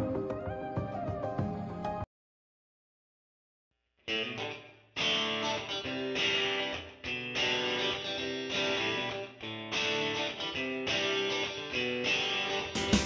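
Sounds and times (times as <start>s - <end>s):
guitar playing chords: 4.1s - 13.0s.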